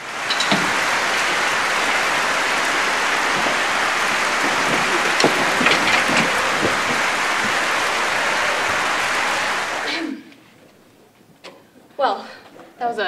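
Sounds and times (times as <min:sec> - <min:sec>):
crowd applause: 0:00.0 - 0:10.1
sharp knocks: 0:00.2 - 0:09.8.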